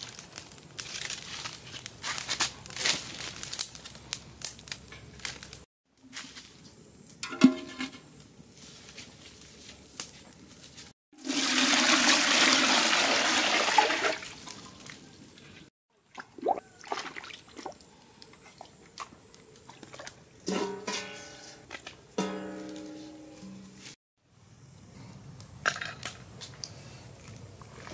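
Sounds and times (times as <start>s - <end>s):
twig fire crackling: 0.0s - 7.3s, 8.0s - 11.0s
water gushing into metal pot: 11.2s - 14.4s.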